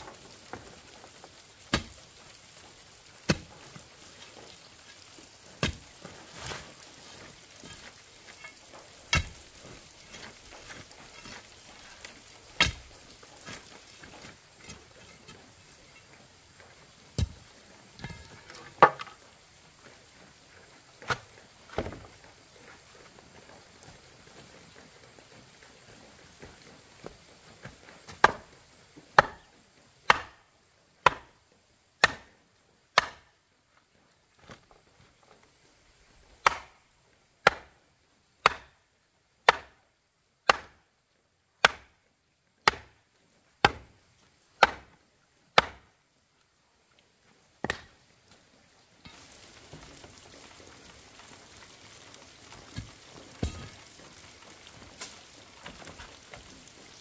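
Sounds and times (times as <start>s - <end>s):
wooden post being pounded: 30.1s - 30.4s, 31.0s - 31.3s, 32.0s - 32.3s, 33.0s - 33.3s, 38.4s - 38.7s, 39.4s - 39.8s, 40.5s - 40.8s, 41.6s - 41.9s, 42.6s - 42.9s, 43.6s - 43.9s, 44.6s - 44.9s, 45.6s - 45.8s.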